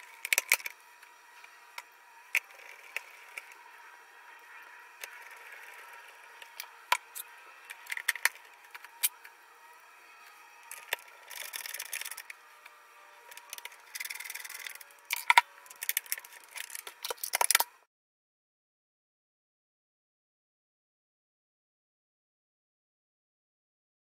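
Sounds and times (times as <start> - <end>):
plastic scraping: 5.0 - 9.3, 10.6 - 12.4.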